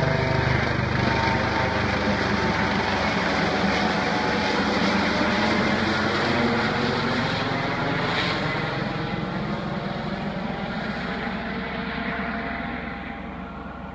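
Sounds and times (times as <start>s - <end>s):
helicopter passing overhead: 0.0s - 13.9s.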